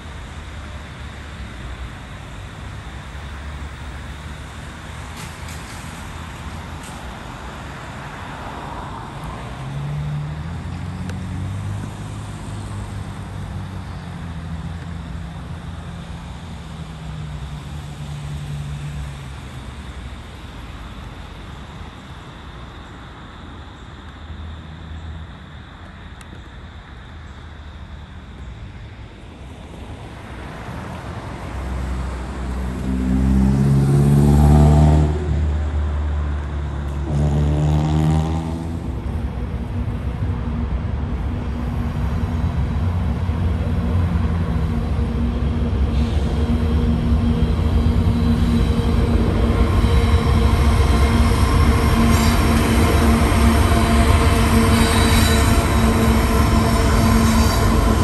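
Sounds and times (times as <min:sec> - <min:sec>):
vehicle engine droning: 0:00.0 - 0:26.5, 0:29.3 - 0:58.0
car passing: 0:30.0 - 0:58.0.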